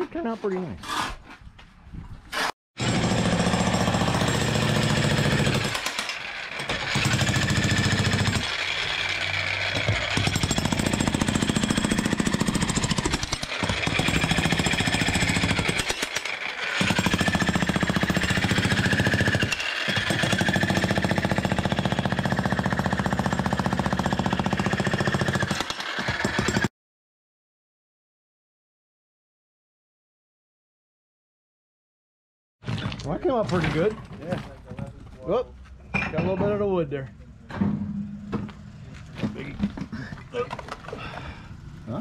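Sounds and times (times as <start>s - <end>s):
jackhammer hammering concrete: 2.8s - 26.7s.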